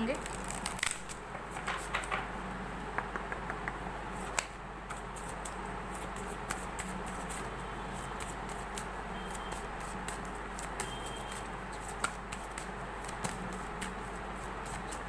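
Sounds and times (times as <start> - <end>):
steady hiss and low hum: 0.0 - 15.0
cards shuffled by hand: 0.2 - 2.2, 9.5 - 15.0.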